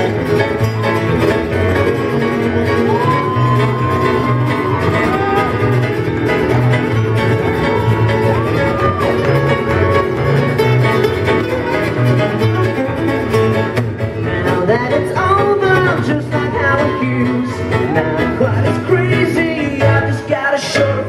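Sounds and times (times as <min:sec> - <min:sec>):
electric and acoustic guitars strummed: 0:00.0 - 0:21.0
man singing: 0:14.1 - 0:21.0.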